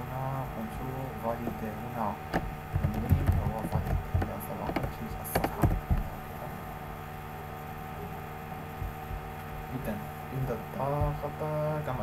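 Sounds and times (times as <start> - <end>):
electrical hum: 0.0 - 12.0
keyboard and mouse clicks: 2.3 - 6.1.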